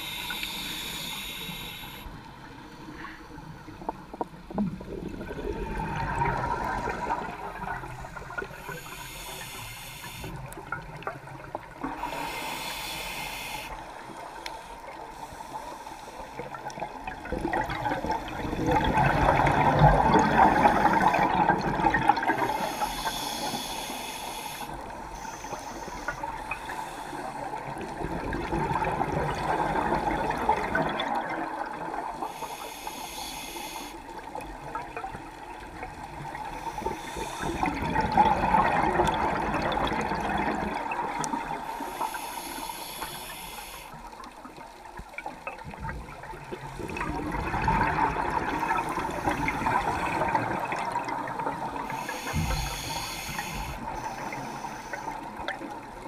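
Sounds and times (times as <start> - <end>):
regulator hissing inhale: 0.0 - 3.6, 7.9 - 10.6, 11.9 - 16.6, 20.4 - 21.4, 22.3 - 27.6, 32.2 - 34.2, 36.3 - 37.8, 41.6 - 44.1, 48.5 - 50.2, 51.8 - 55.4
rush of exhaled bubbles: 4.5 - 8.6, 16.8 - 22.6, 27.7 - 32.1, 35.8 - 41.6, 45.5 - 54.0.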